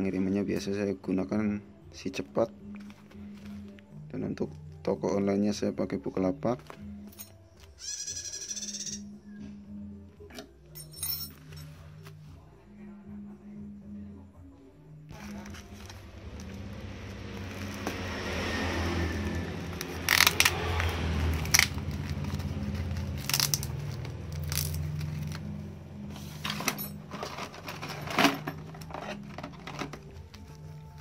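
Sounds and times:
plastic wrapping crinkling: 0:19.9 - 0:25.4.

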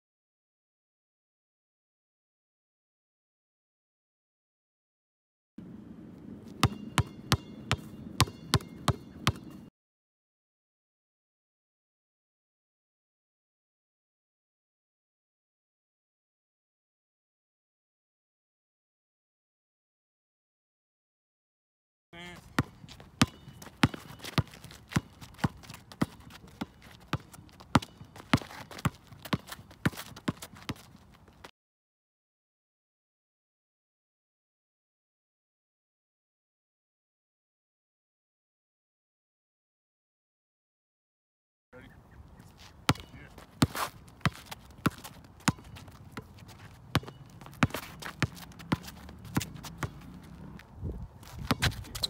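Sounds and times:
basketball bouncing on asphalt: 0:06.4 - 0:09.7, 0:22.2 - 0:31.5, 0:42.6 - 0:52.0.

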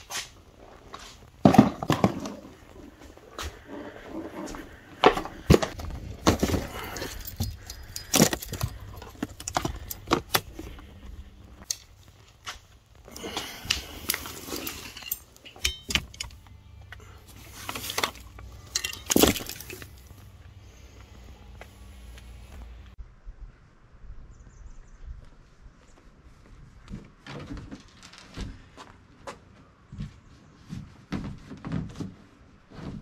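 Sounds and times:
gear knocking and jangling: 0:05.8 - 0:10.3
gear clattering: 0:13.7 - 0:20.2.

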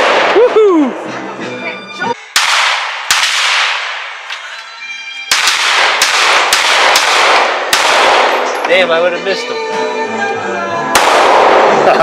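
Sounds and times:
handgun shots ringing: 0:02.4 - 0:04.2, 0:05.3 - 0:08.7, 0:11.0 - 0:11.8.

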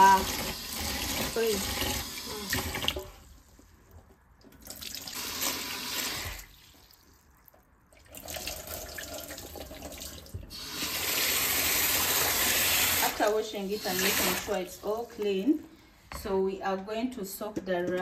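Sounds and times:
water splashing in metal sink: 0:00.0 - 0:03.2, 0:04.4 - 0:15.3.

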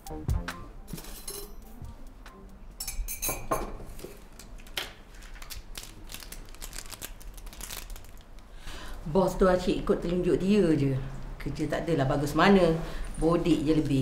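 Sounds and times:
quiet background music: 0:00.0 - 0:08.1
mug clinks and knocks: 0:02.8 - 0:03.8.

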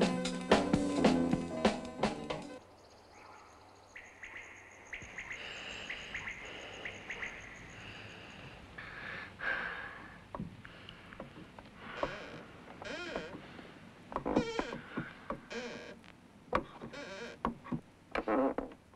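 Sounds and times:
small birds chirping: 0:02.6 - 0:09.4.

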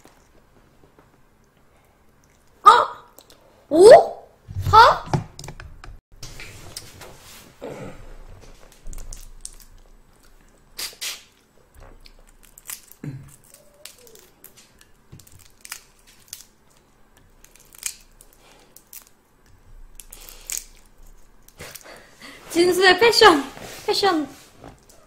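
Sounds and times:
shrimp shells cracking: 0:12.0 - 0:19.2, 0:19.9 - 0:22.0.

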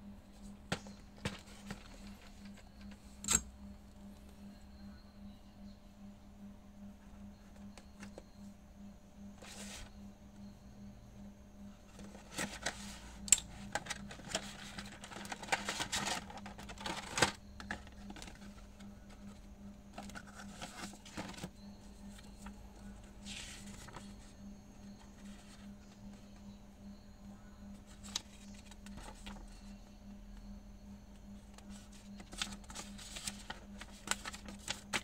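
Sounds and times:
cardboard and plastic handling: 0:00.4 - 0:03.4, 0:11.9 - 0:24.3, 0:27.8 - 0:29.5, 0:31.5 - 0:35.0
paper rustling: 0:00.7 - 0:02.9, 0:11.9 - 0:24.3, 0:31.5 - 0:35.0.

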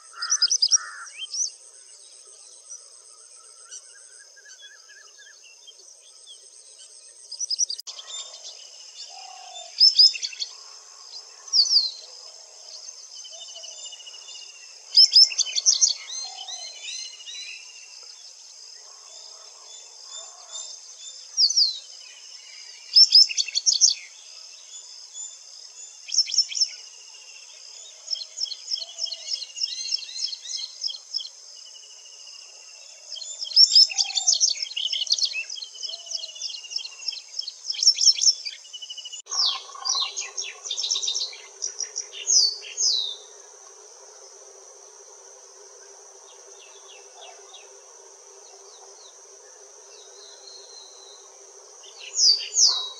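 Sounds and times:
bird singing: 0:00.0 - 0:52.9
high-pitched insect drone: 0:38.8 - 0:52.9.

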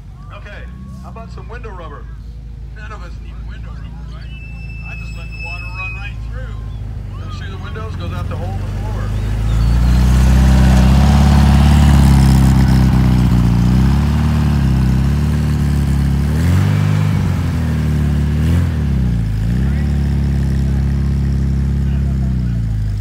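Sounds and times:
vehicle engine revving: 0:00.0 - 0:23.0.

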